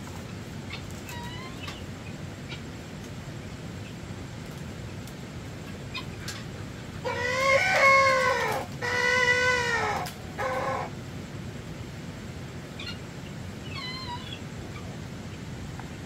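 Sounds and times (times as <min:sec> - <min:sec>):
animal calls: 0:00.7 - 0:02.7, 0:05.9 - 0:11.0, 0:12.8 - 0:15.5.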